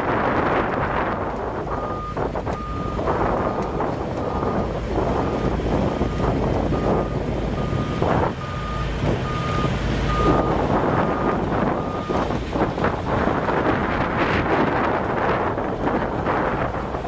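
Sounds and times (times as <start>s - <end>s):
heavy machinery running: 0.0s - 17.0s
reversing alarm beeping: 1.8s - 3.6s, 4.2s - 4.6s, 5.2s - 12.2s.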